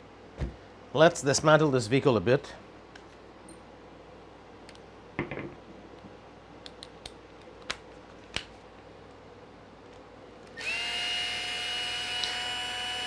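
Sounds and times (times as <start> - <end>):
electric screwdriver whine: 10.6 - 13.0.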